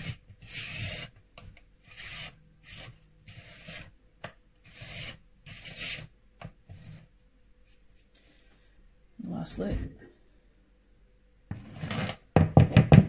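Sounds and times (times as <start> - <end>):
spatula scraping batter in bowl: 0.0 - 1.2, 1.8 - 4.0, 4.6 - 7.1.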